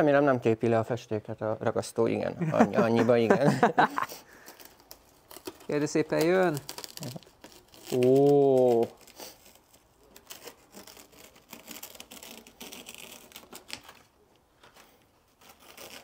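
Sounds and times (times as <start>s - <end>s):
paper stencil peeling off: 4.1s - 16.0s.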